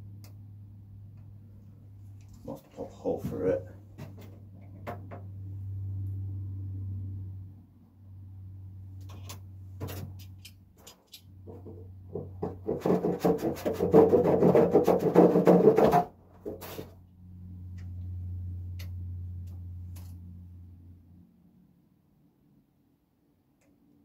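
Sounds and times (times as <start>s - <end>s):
steady low hum: 0.0s - 12.8s, 16.1s - 24.0s
rapid rhythmic rubbing by hand: 12.5s - 16.8s.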